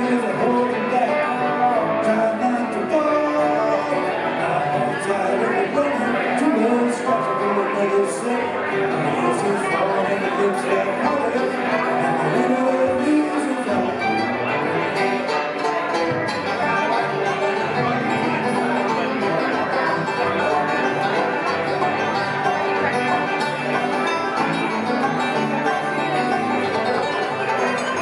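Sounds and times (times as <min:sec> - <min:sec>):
banjo picking: 0:00.0 - 0:28.0
bowed fiddle: 0:00.0 - 0:28.0
dobro: 0:00.0 - 0:28.0
strummed acoustic guitar: 0:00.0 - 0:28.0.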